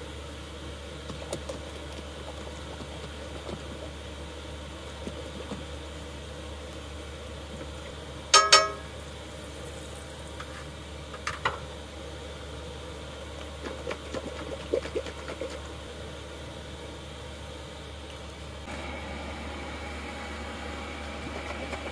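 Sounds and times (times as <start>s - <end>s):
ringing cookware clinks: 8.4s - 9.0s.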